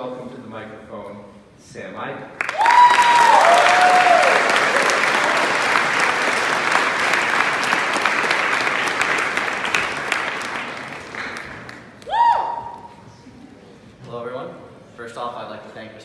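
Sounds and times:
audience clapping: 2.4 - 12.9.

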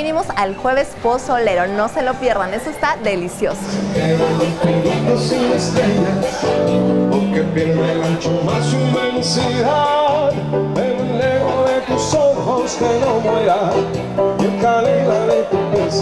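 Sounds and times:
song with sung melody: 3.2 - 16.0.

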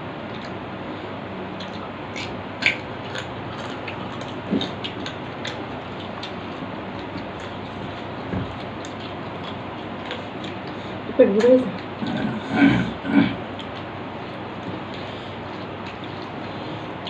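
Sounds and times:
chewing and plate clicks: 1.6 - 10.8, 13.6 - 16.4.

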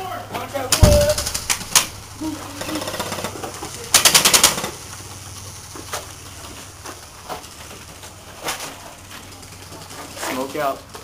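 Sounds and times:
airsoft rifle gunfire: 0.7 - 1.9.

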